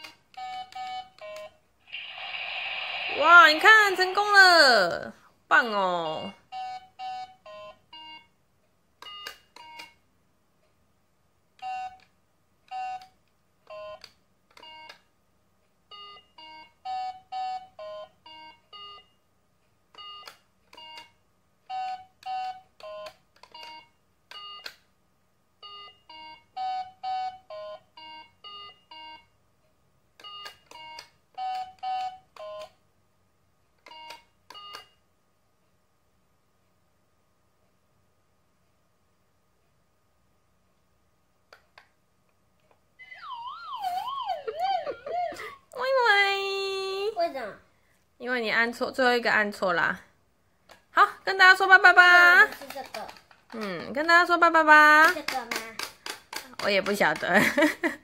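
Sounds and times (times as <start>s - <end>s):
electronic game beeping: 43.0s - 45.5s.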